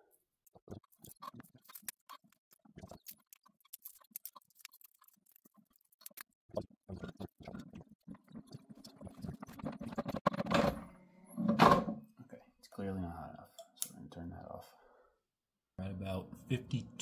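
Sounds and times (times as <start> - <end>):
plastic pieces clicking and rattling: 0.8 - 6.2.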